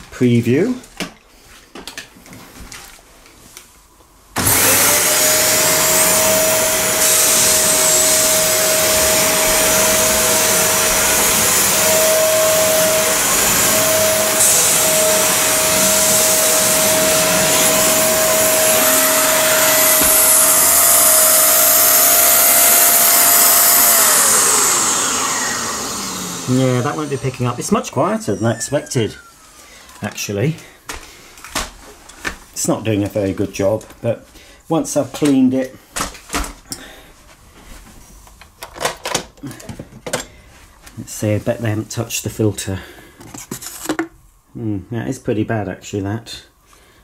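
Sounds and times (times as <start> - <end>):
vacuum floor head on carpet: 4.4 - 30.1
vacuum cleaner whining: 4.4 - 30.7.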